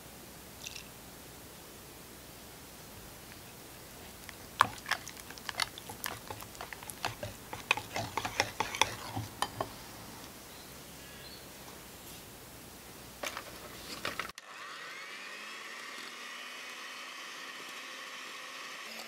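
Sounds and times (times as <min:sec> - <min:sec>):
whisk ticking against glass bowl: 0:04.6 - 0:09.8.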